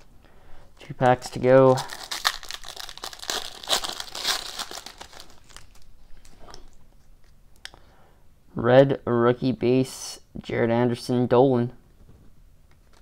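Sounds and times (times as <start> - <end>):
foil wrapper tearing and crinkling: 1.6 - 5.9.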